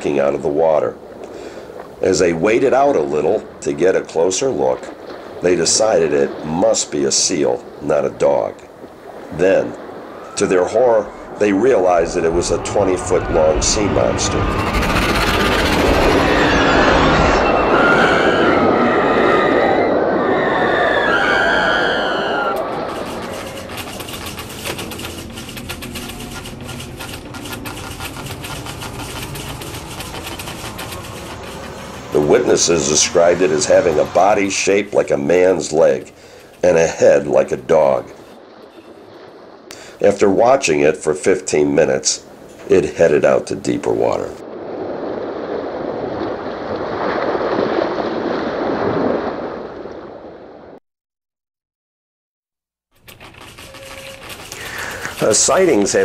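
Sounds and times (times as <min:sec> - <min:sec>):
water rushing and splashing: 0:00.0 - 0:40.7, 0:43.9 - 0:50.8, 0:53.1 - 0:56.0
low hum: 0:11.0 - 0:36.6
rapid irregular ticking: 0:22.5 - 0:36.8, 0:52.9 - 0:56.0
small machine running: 0:22.8 - 0:32.3, 0:53.1 - 0:55.7.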